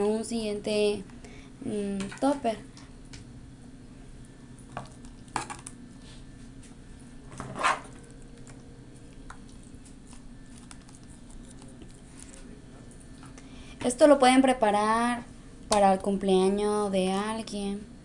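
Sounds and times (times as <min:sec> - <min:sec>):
low hum: 0:00.0 - 0:18.0.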